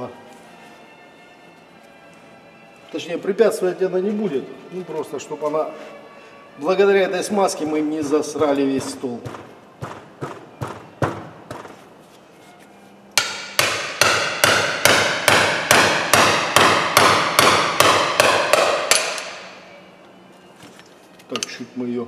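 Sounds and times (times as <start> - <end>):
hammer blows on metal: 13.2 - 19.7.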